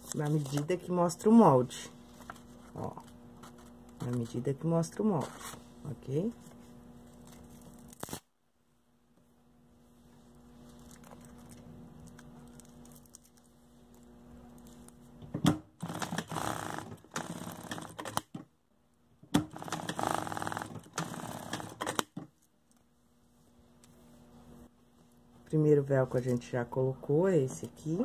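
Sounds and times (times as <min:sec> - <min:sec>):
sewing machine stitching: 0:15.8 - 0:18.3, 0:19.4 - 0:22.2.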